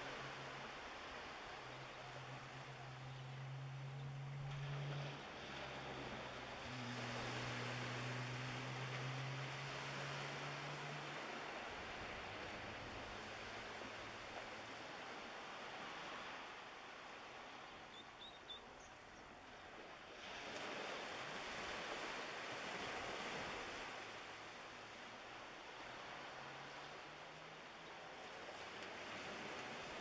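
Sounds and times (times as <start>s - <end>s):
low motor hum: 0.0s - 16.0s
small waves washing on shore: 0.0s - 30.0s.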